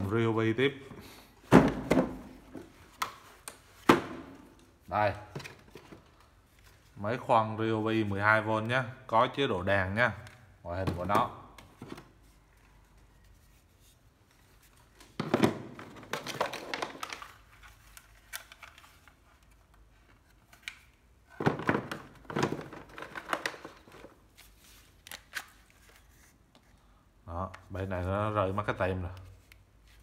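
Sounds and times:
plastic case clattering and rustling: 15.0s - 17.4s, 21.3s - 24.2s.

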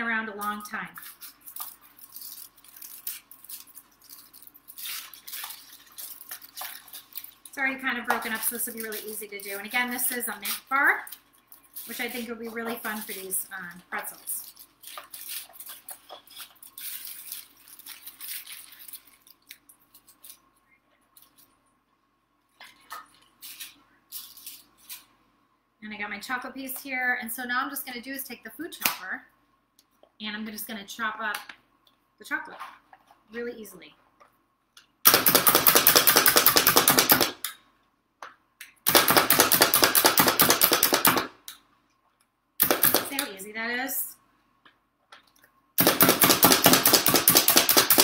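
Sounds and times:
wrapper crinkling: 1.0s - 7.6s, 8.2s - 21.6s, 22.7s - 25.1s.

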